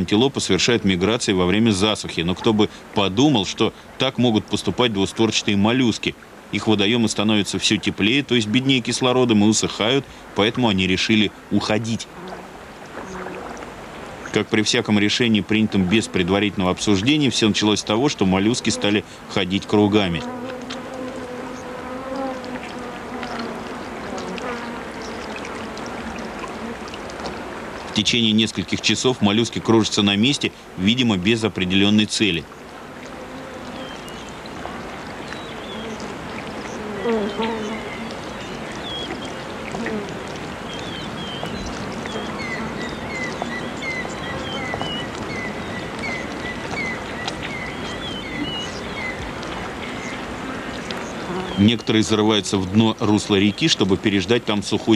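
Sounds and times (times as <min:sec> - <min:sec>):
flying insect buzzing: 0:20.1 - 0:27.0, 0:32.9 - 0:40.8, 0:51.1 - 0:51.6
faint ticks: 0:20.2 - 0:28.0, 0:32.5 - 0:48.0.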